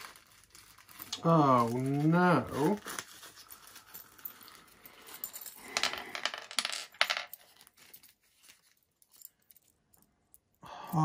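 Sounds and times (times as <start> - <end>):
small metal parts clinking: 0.1 - 10.6.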